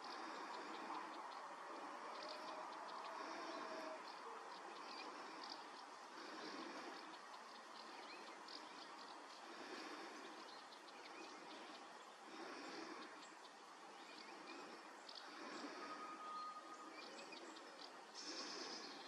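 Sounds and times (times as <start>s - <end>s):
faint bird chirps: 0.0s - 19.0s
steady hiss: 0.0s - 19.0s.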